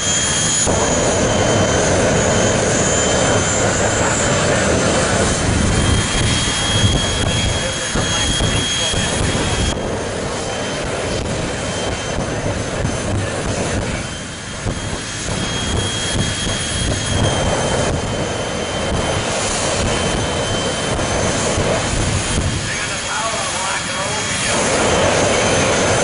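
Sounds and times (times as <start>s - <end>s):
high turbine whine: 0.0s - 26.0s
jet engine roaring: 0.0s - 26.0s.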